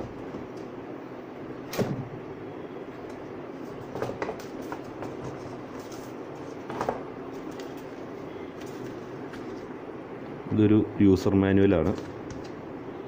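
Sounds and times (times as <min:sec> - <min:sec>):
paper rustling: 0:03.6 - 0:09.8.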